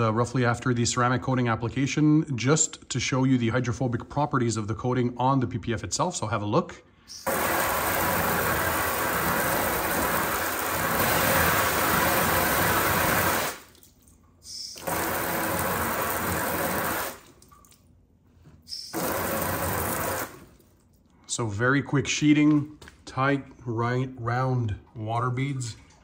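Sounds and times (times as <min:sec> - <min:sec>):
water spraying on car: 0:07.3 - 0:13.9, 0:14.8 - 0:17.5, 0:18.9 - 0:20.7.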